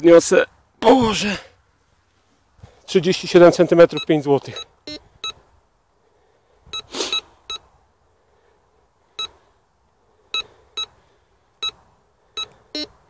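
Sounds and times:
metal detector beeps: 3.9 - 5.4, 6.7 - 7.6, 9.2 - 9.4, 12.4 - 13.0.

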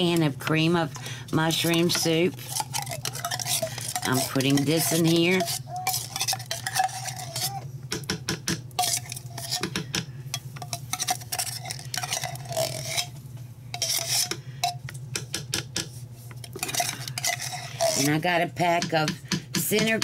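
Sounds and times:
steady low hum: 0.0 - 20.0
fork scraping tin can: 1.4 - 7.6, 8.8 - 9.8, 10.6 - 14.8, 16.4 - 18.3.

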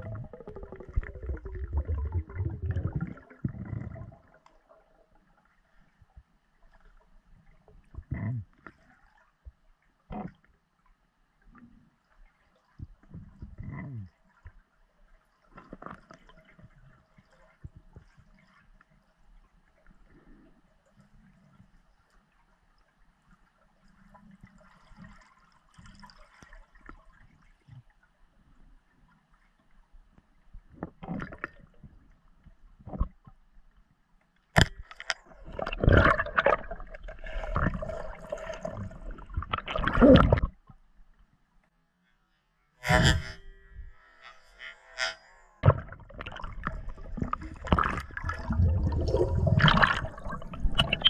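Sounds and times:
bubbles gurgling: 0.0 - 4.4, 35.2 - 40.6, 45.6 - 51.0
small underwater clicks and knocks: 5.7 - 28.1, 29.0 - 37.8, 39.0 - 41.8, 44.7 - 48.4, 49.6 - 51.0
churning water and scraping: 34.6 - 40.8, 44.6 - 51.0.

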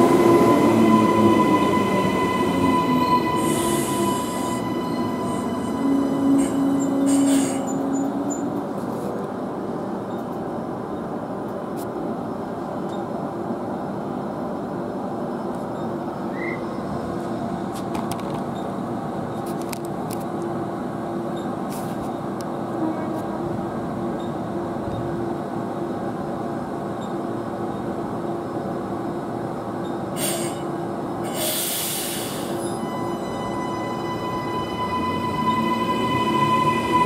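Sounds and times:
train wheels and brakes squealing: 0.0 - 8.6, 15.8 - 16.9, 29.8 - 37.0
standing train humming: 0.0 - 37.0.

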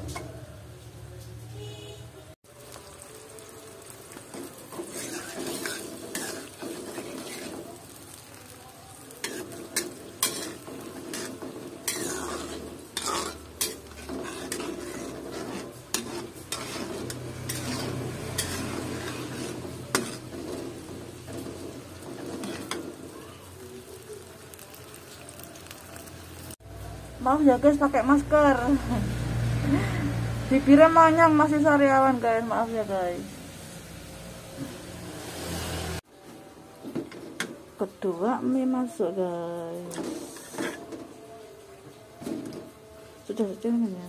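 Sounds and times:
frying sizzle: 0.0 - 44.0
metal spatula scraping a wok: 4.1 - 8.4, 9.0 - 23.6, 39.7 - 41.6.

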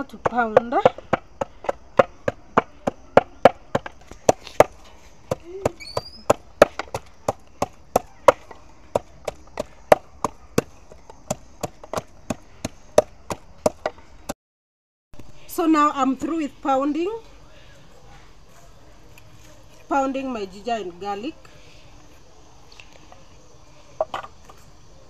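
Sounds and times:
wooden pestle pounding in mortar: 0.0 - 14.0.

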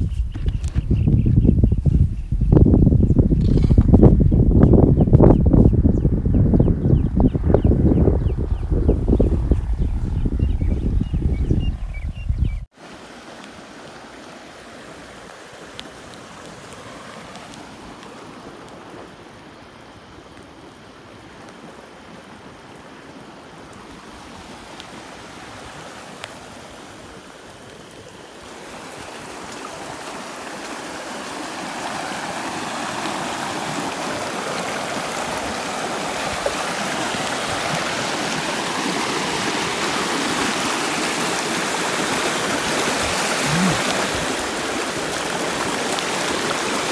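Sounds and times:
floodwater rushing: 12.7 - 46.9.

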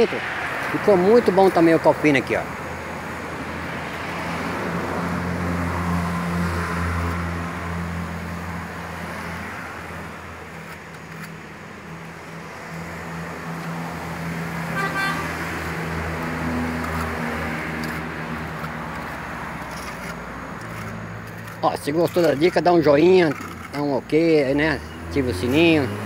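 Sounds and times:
street traffic: 0.0 - 26.0
car horn toot: 14.6 - 15.5.

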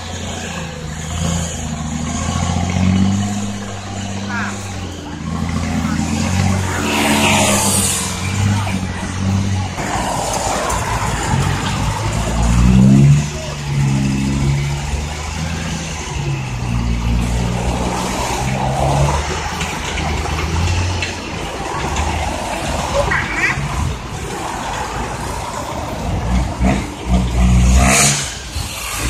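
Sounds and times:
diesel truck engine running: 0.0 - 29.0.

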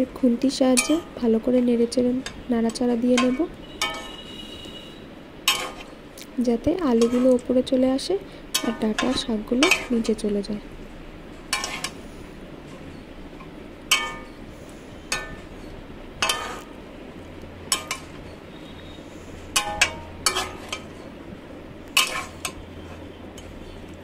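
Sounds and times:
spatula scraping metal pan: 3.2 - 6.0, 6.9 - 7.5, 8.5 - 10.2, 11.5 - 12.1, 15.0 - 16.7, 19.5 - 21.1, 22.0 - 23.8.

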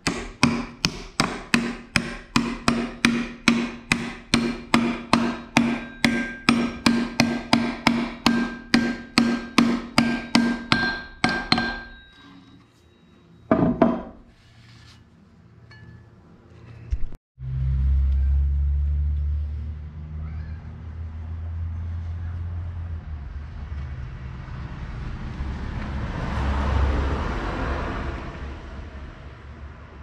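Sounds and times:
hammer striking metal: 0.0 - 12.4, 13.5 - 14.3.

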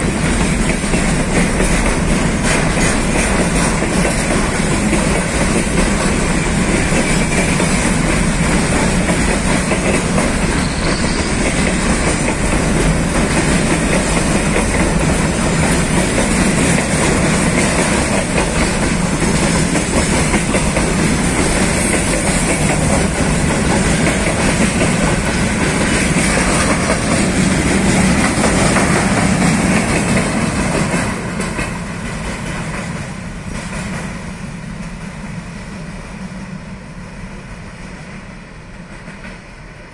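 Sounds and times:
train wheels clattering on rails: 0.0 - 39.9.

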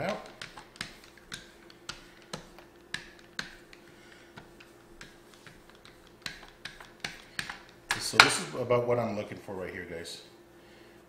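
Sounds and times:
pastry roller clicks and taps: 0.0 - 8.2
faint steady hum: 0.0 - 11.0.

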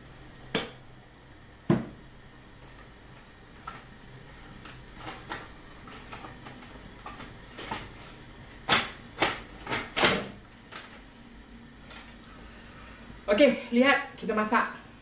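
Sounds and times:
loud knocks on cupboard: 1.7 - 2.0.

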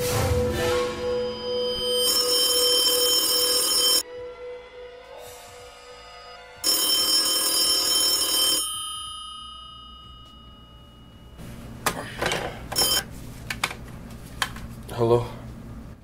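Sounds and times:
telephone ringing: 1.4 - 4.0, 6.6 - 11.4, 12.7 - 13.1.

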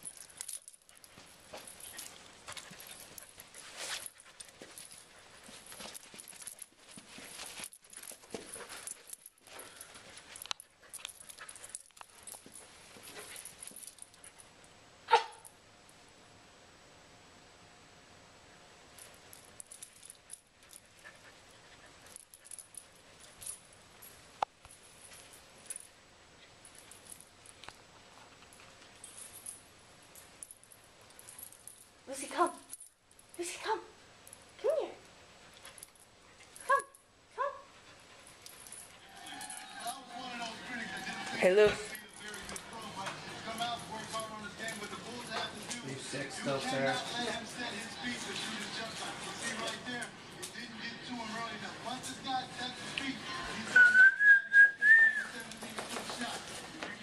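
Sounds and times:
puppy panting: 0.0 - 14.5, 20.0 - 23.7
collar hardware jingling: 0.0 - 14.7, 19.0 - 34.6, 35.4 - 50.6, 55.0 - 56.6
rustles: 0.0 - 14.8, 18.8 - 50.6.

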